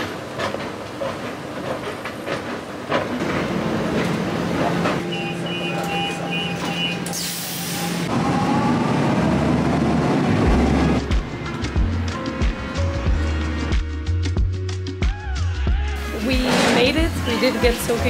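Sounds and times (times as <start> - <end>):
train rumbling pulling away: 0.0 - 14.1, 16.0 - 18.0
train doors hissing shut: 4.9 - 8.1
short rapid beeps: 5.1 - 7.1.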